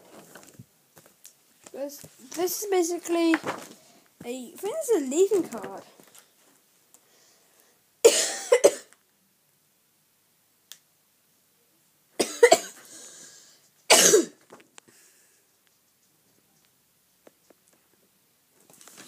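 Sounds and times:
person coughing: 0:08.0 - 0:08.9, 0:12.2 - 0:12.9, 0:13.9 - 0:14.4.

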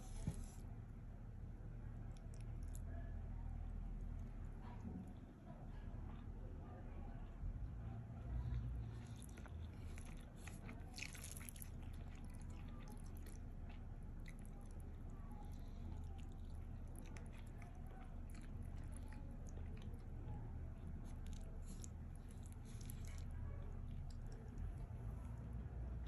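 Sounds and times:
steady low hum: 0:00.0 - 0:26.0
fingers squishing sticky rice: 0:07.4 - 0:26.0.

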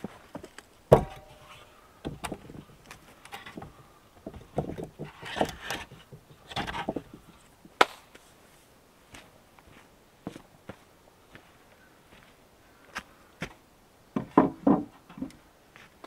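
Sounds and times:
wood knocking and scraping on stone: 0:00.0 - 0:07.5, 0:14.2 - 0:15.4
log thudding on stone: 0:00.4 - 0:01.5, 0:02.1 - 0:07.9, 0:14.2 - 0:15.4.

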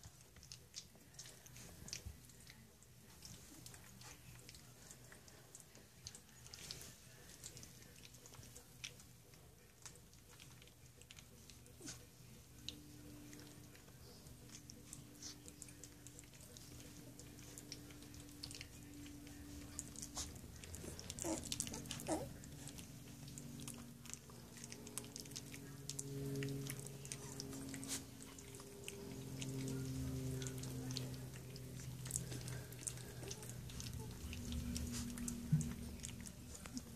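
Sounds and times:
faint low hum: 0:00.0 - 0:36.9
puppies suckling wet smacking: 0:00.0 - 0:36.9.

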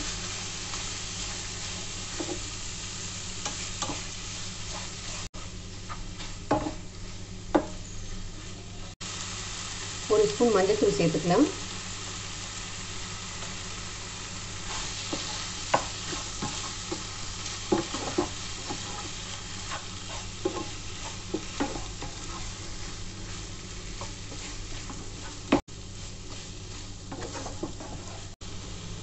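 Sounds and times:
wooden spatula scraping a pan: 0:00.0 - 0:02.6, 0:03.4 - 0:08.7, 0:14.6 - 0:28.4
chicken sizzling in a pan: 0:00.0 - 0:29.0.

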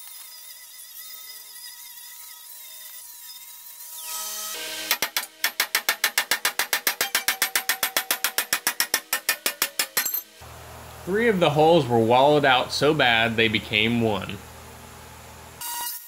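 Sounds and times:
angle grinder grinding steel: 0:00.0 - 0:08.6
sharp metal knocks: 0:04.9 - 0:10.3.

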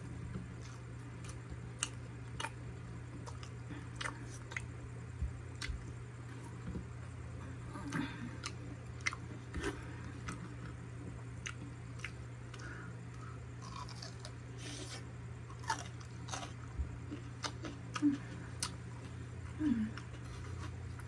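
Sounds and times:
crunchy bites: 0:11.4 - 0:18.9.

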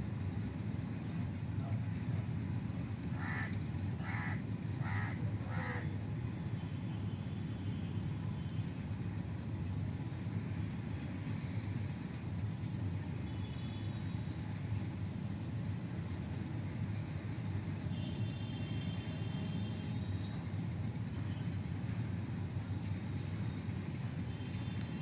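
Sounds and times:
crow cawing: 0:03.2 - 0:05.9.

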